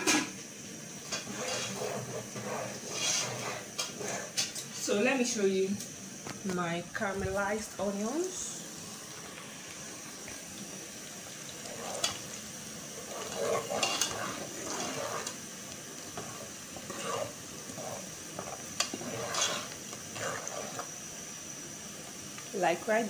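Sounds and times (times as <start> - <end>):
onions frying in hot oil: 0.0 - 23.0
metal ladle scraping pot: 1.0 - 4.6, 11.6 - 12.3, 12.9 - 15.4, 16.1 - 20.9.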